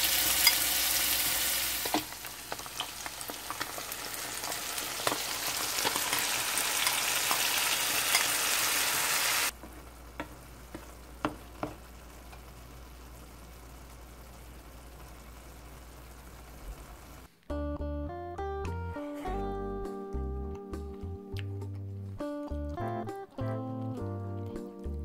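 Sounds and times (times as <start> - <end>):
sauce simmering with pops: 0.0 - 17.3
sauce sizzling in a frying pan: 0.0 - 17.3.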